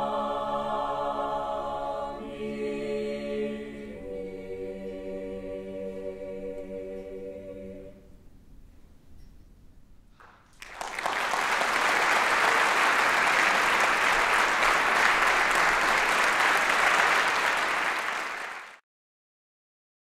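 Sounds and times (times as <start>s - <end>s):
audience applause: 10.2s - 18.8s.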